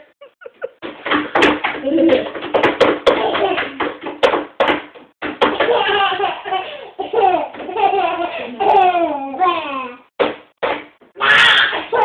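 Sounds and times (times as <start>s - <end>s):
hands slapping a tabletop: 0.8s - 5.8s, 10.2s - 11.0s
child's voice: 8.7s - 10.1s.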